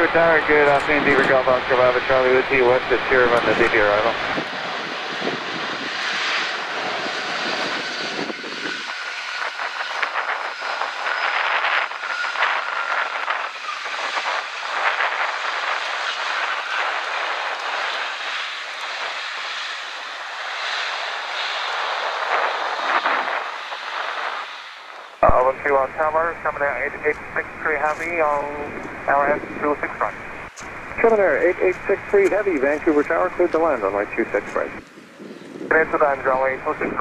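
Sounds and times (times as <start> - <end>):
jet engines rushing: 0.0 - 37.0
faint steady whine: 8.7 - 35.0.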